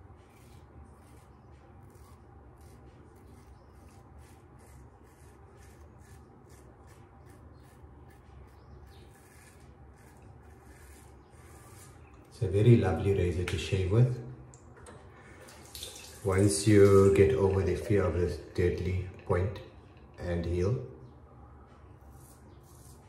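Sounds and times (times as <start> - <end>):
straight razor scraping stubble: 0.0 - 13.6, 22.0 - 23.0.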